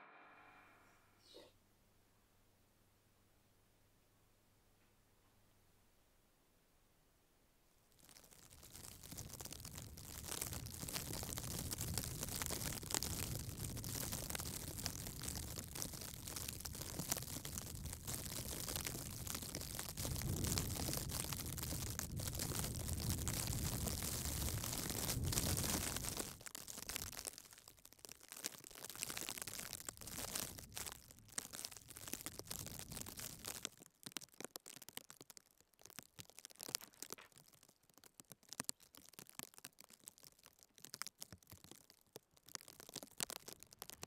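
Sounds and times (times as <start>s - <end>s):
faint hiss: 0.0s - 2.9s
small crackles and crunches: 7.8s - 44.0s.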